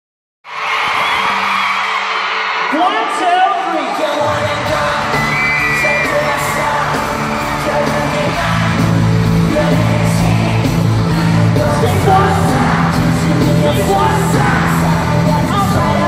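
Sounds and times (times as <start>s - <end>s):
audience yelling and whooping: 0.5s - 16.0s
loud live pop music: 0.5s - 16.0s
person singing: 3.9s - 16.0s
heavy bass line: 4.4s - 16.0s.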